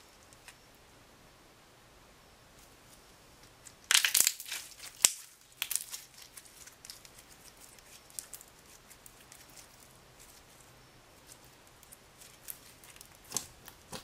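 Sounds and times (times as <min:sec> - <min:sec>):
slime squishing and popping: 0:03.9 - 0:08.4, 0:11.8 - 0:14.0.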